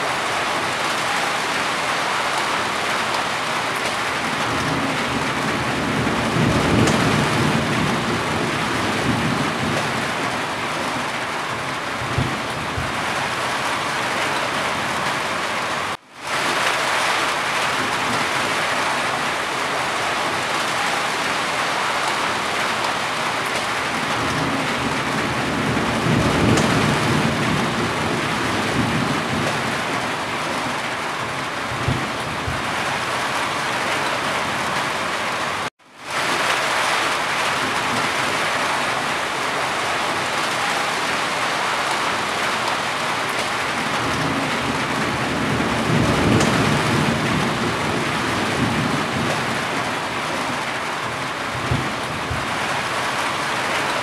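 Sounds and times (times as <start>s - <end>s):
heavy rain on a roof: 0.0s - 54.0s.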